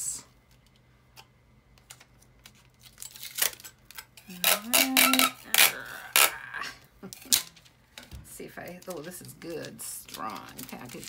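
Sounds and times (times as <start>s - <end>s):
packing tape ripping off roll: 1.9s - 6.4s.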